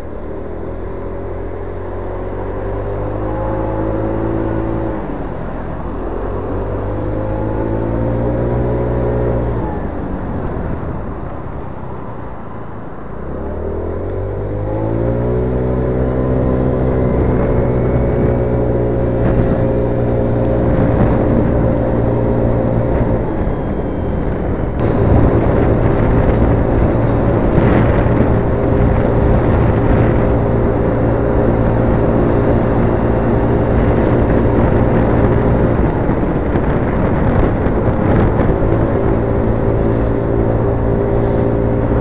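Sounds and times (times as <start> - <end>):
road and wind noise: 0.0 - 42.0
scooter engine running: 0.0 - 42.0.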